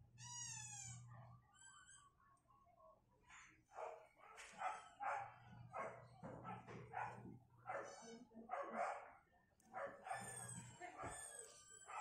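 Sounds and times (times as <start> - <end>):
dog barking: 3.7 - 12.0.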